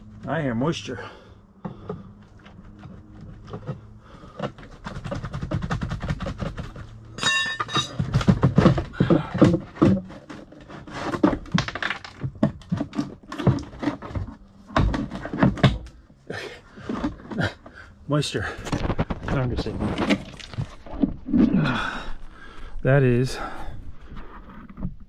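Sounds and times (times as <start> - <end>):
plastic part knocking and rattling: 2.7 - 16.0.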